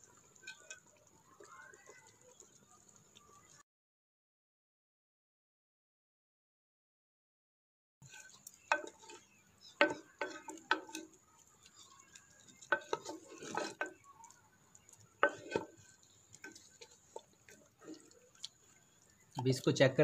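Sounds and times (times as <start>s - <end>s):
wooden spoon stirring in clay pot: 0.0s - 3.6s, 8.0s - 20.0s.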